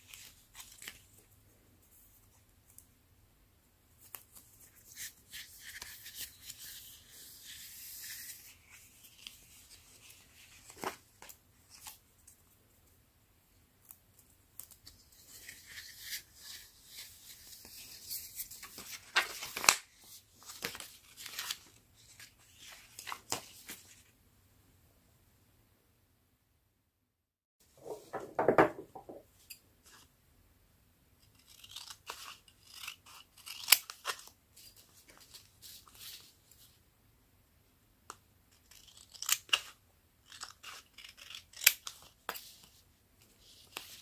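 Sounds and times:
paper rustling and crinkling: 14.6s - 24.1s.

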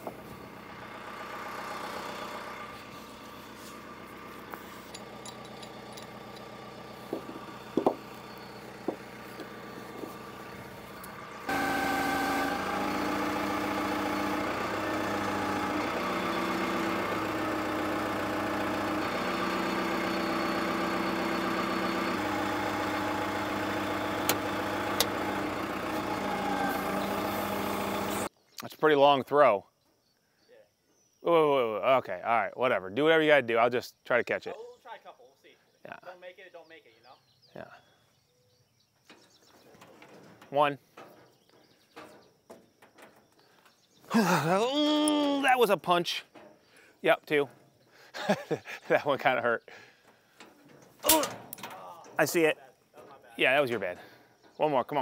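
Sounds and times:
diesel engine running: 0.0s - 28.3s
knocks: 7.1s - 8.0s.

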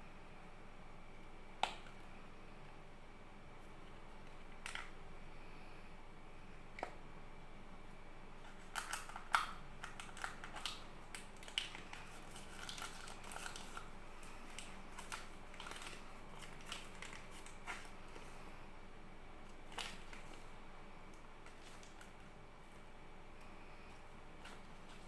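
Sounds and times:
plastic wrapper crinkling: 4.2s - 5.0s, 8.4s - 18.3s, 19.4s - 20.5s, 21.1s - 22.3s, 24.0s - 25.0s.

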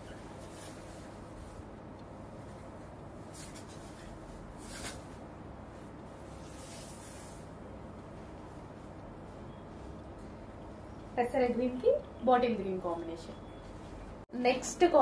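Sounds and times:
silk cloth rustling: 0.0s - 1.7s, 2.5s - 7.5s
steady low hum: 0.0s - 14.9s
cloth swishes: 3.2s - 7.5s.

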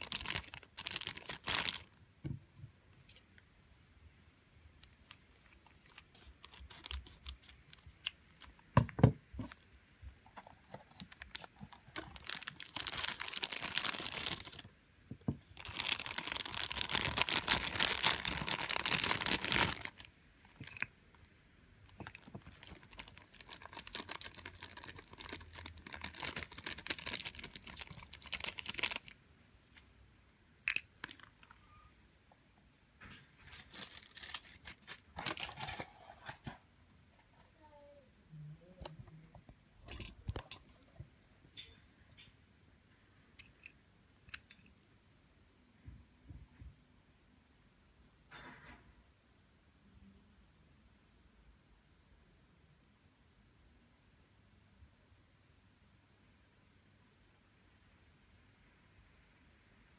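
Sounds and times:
plastic bag crinkling: 0.0s - 2.0s, 5.0s - 8.6s, 10.3s - 14.7s, 15.5s - 20.9s, 21.9s - 29.2s, 33.4s - 36.2s.

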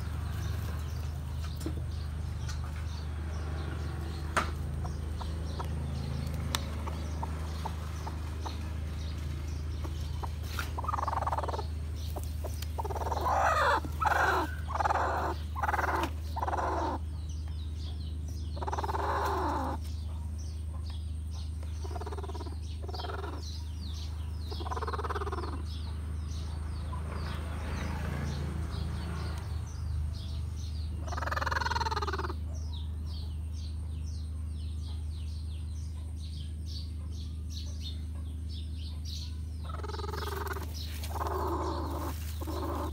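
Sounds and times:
steady low hum: 0.0s - 27.5s
chicken clucking: 3.9s - 17.1s, 17.8s - 25.7s, 30.9s - 32.6s, 38.9s - 42.9s.

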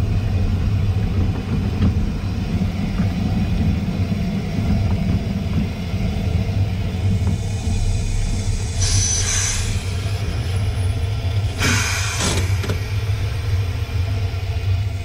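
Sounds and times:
steam engine low rumble: 0.0s - 15.0s
steam hiss bursts: 7.3s - 10.3s, 11.6s - 12.6s.

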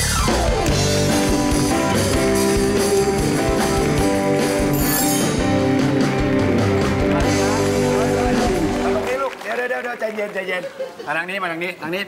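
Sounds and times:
band music with steady beat: 0.0s - 9.0s.

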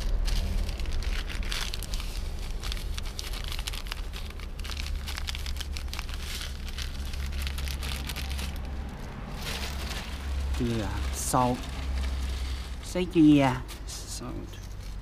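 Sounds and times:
low rumble: 0.0s - 13.9s.

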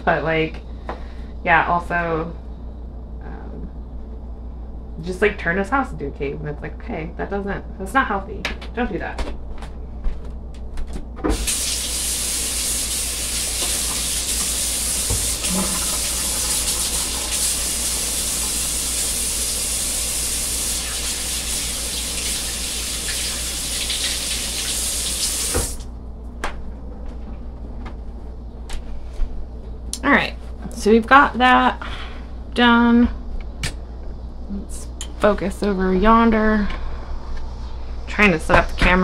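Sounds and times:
faucet running into sink: 11.3s - 25.8s.

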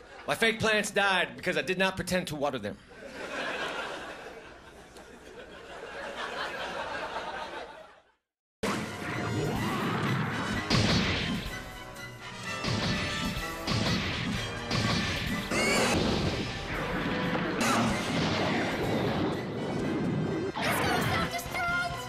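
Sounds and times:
audience laughter: 2.9s - 8.2s
loud music with crashing impacts: 8.6s - 21.3s.

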